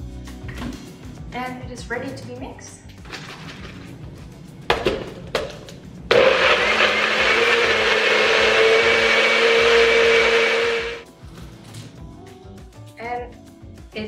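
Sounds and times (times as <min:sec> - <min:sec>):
blender motor whining: 0:06.1 - 0:11.0.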